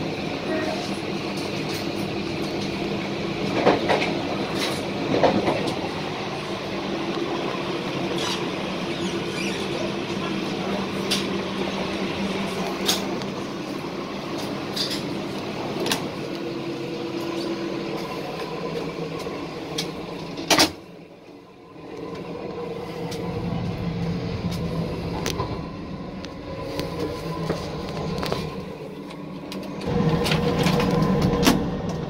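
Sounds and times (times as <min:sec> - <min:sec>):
railcar interior running hum: 0:00.0 - 0:32.0.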